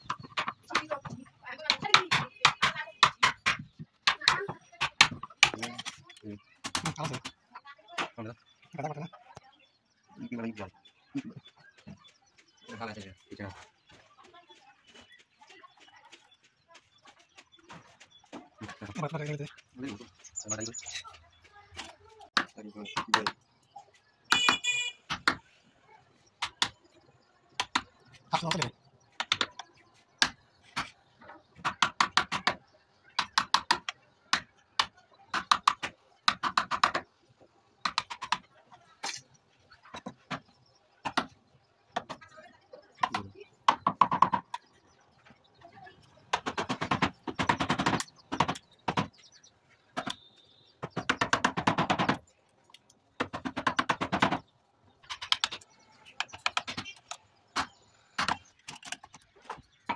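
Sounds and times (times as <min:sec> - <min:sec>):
rapid clicking and tapping of tools: 0:00.0 - 0:07.4, 0:21.0 - 0:25.5, 0:26.3 - 0:37.2, 0:37.8 - 0:41.4, 0:43.0 - 0:45.3, 0:46.3 - 0:59.9.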